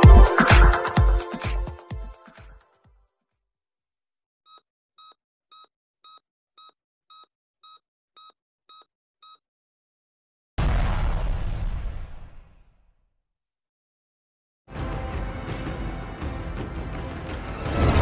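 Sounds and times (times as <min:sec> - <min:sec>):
short electronic beeps: 0:04.5 - 0:09.4
loud boom: 0:10.6 - 0:12.8.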